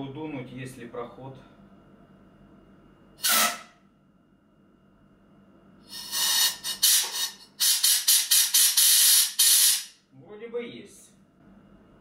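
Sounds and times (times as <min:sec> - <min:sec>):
compressed air blow gun hissing: 0:05.9 - 0:09.9.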